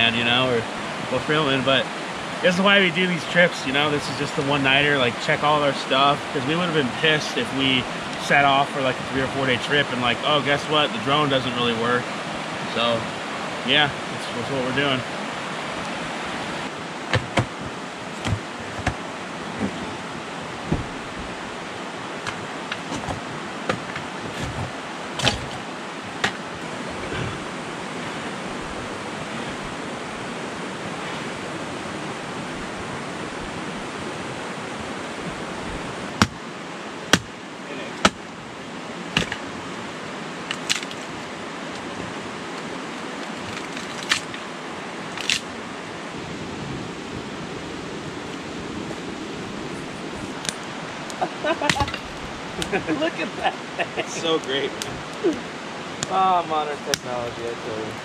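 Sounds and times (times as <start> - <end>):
stream rushing: 0.0 - 58.0.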